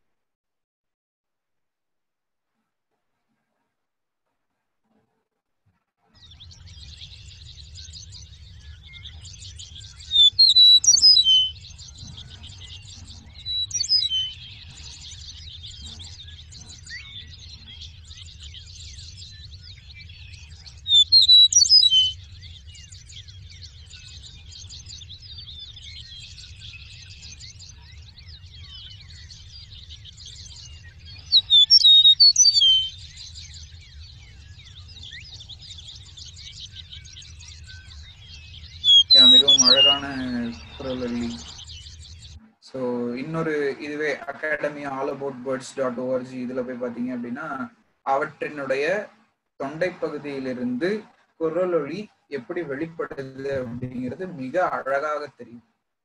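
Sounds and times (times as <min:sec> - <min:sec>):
meadowlark singing whistled notes: 0:06.1 - 0:49.0.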